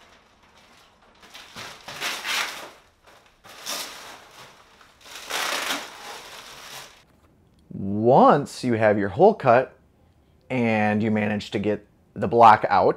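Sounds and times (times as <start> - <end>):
plastic sheeting crinkling: 0.0 - 7.1.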